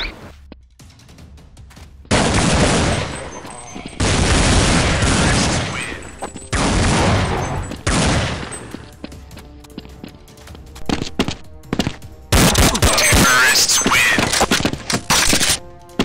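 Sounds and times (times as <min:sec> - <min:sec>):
bursts of rapid gunfire: 0:02.1 - 0:03.4, 0:04.0 - 0:06.0, 0:12.3 - 0:15.4.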